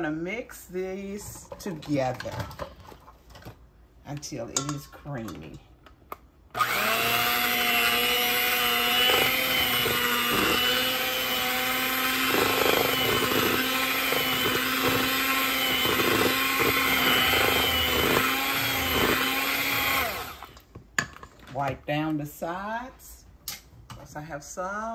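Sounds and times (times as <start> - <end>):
electric hand mixer whirring: 6.6 - 20.6.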